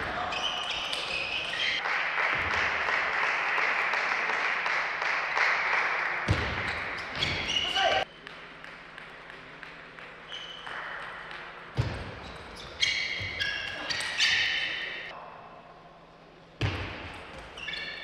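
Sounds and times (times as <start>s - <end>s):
shoes squeaking on floor: 0.2s - 1.8s, 6.6s - 8.1s, 10.3s - 10.8s, 11.8s - 15.1s, 17.4s - 18.0s.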